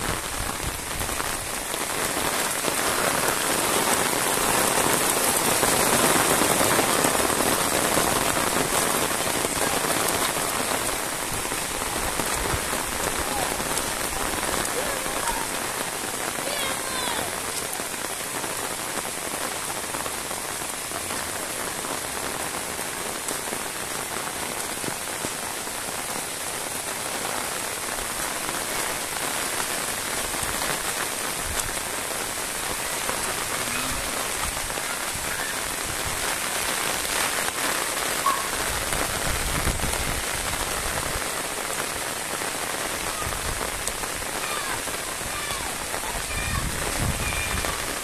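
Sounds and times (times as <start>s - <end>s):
steady rain falling: 0.0s - 48.0s.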